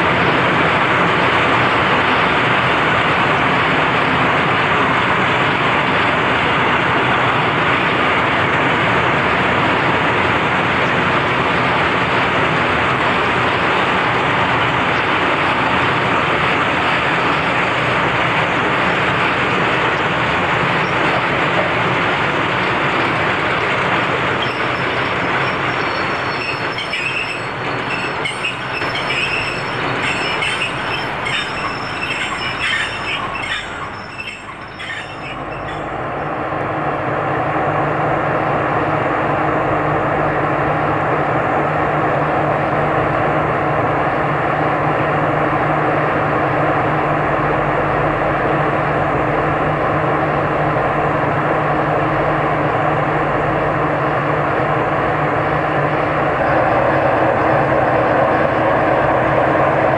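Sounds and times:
diesel locomotive engine running: 0.0s - 59.9s
train wheels squealing and clicking: 24.0s - 36.3s.

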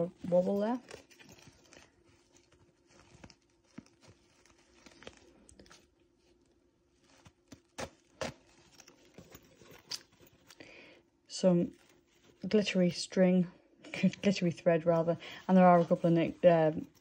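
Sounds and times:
pouch rustling: 0.0s - 10.6s, 11.5s - 12.8s.

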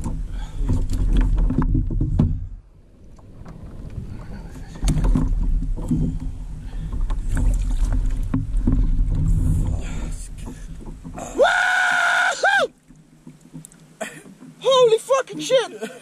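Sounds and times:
knocks against kayak hull: 0.0s - 2.6s, 4.8s - 6.3s
low rumble: 0.0s - 11.4s
fish splashing and thrashing: 0.0s - 12.1s.

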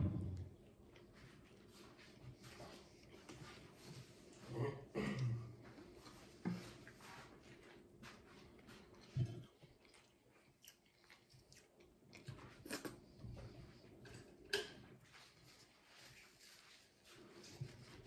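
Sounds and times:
person chewing food: 8.4s - 15.1s.

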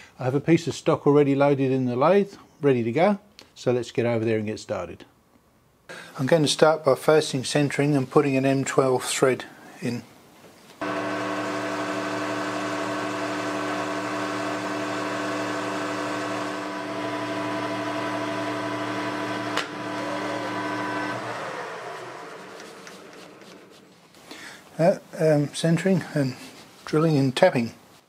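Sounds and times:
lathe spindle coasting down: 10.8s - 24.0s
metal lathe humming whine: 10.8s - 24.0s.

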